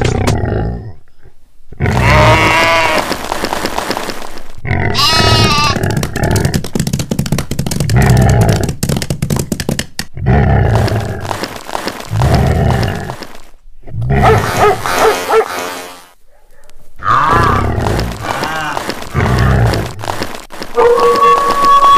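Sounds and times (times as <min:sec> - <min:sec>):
quavering bleats: 0:01.8 - 0:03.1, 0:04.8 - 0:05.8, 0:17.0 - 0:20.0
low rough animal calls: 0:04.7 - 0:06.5.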